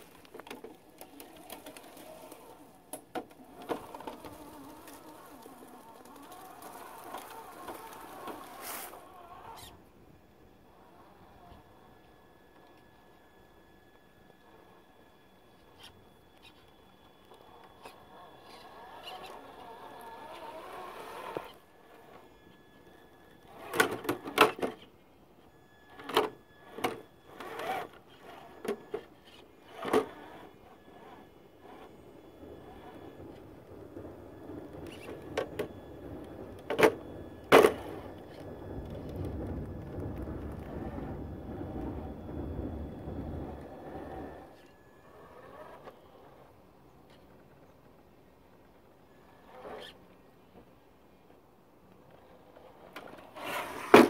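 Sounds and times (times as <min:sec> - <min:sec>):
thin electronic whine: 0:00.0 - 0:54.0
toy car motor whirring: 0:03.4 - 0:09.8, 0:15.6 - 0:22.6, 0:23.4 - 0:24.9, 0:25.9 - 0:33.4, 0:34.7 - 0:35.8, 0:43.6 - 0:46.5, 0:49.4 - 0:50.0, 0:52.4 - 0:54.0.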